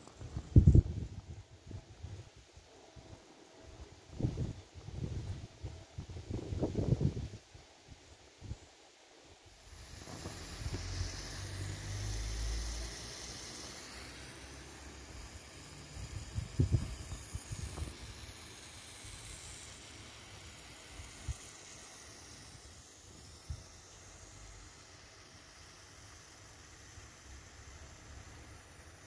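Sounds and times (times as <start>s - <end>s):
wind rumble on microphone: 0.2s - 2.4s, 4.1s - 7.5s, 15.1s - 18.4s
steam engine hissing: 9.5s - 29.0s.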